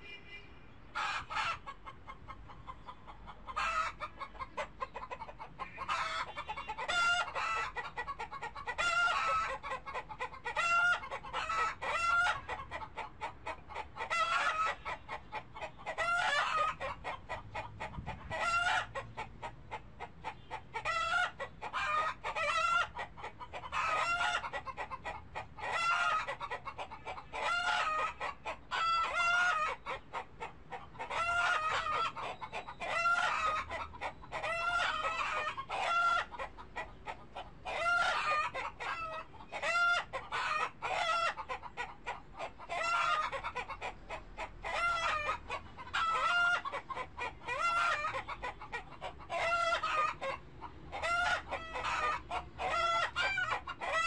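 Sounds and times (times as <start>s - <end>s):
chickens clucking: 0.0s - 54.0s.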